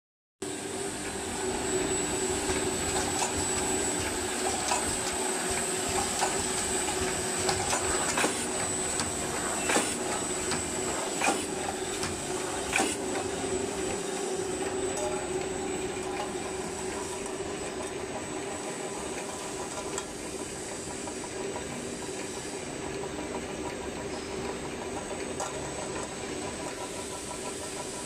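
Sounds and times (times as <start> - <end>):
seaming machine hum and whine: 0.4 - 28.0
machine clacks: 2.4 - 18.1.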